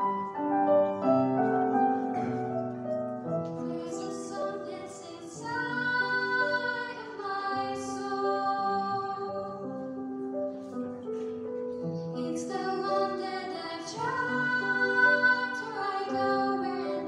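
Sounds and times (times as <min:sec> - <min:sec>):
piano accompaniment: 0:00.0 - 0:17.0
girls' choir singing: 0:03.6 - 0:09.8, 0:12.2 - 0:17.0.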